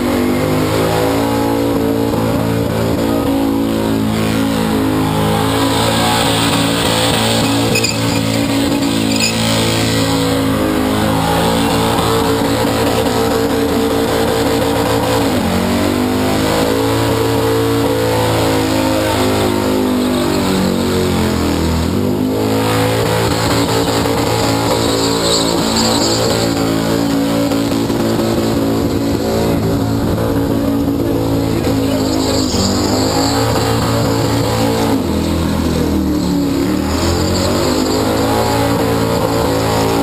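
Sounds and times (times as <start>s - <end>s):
car engine revving high: 0.7s - 40.0s
tyres spinning: 6.2s - 10.1s, 22.9s - 29.8s, 30.9s - 40.0s.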